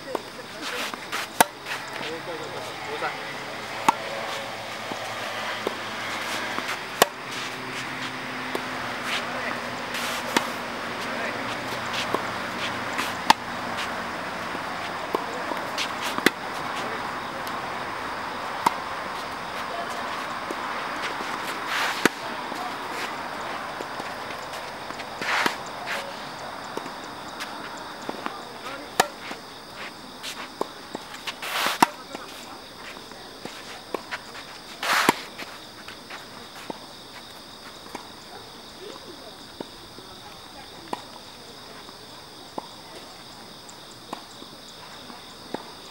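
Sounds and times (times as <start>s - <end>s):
steady background hiss: 0.0s - 45.9s
high insect buzz: 0.1s - 32.0s
tennis ball pocks: 0.1s - 38.2s.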